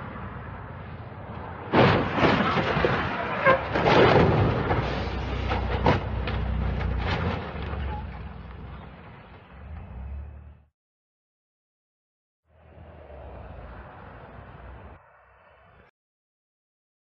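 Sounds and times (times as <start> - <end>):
excavator diesel engine: 3.0 - 10.7.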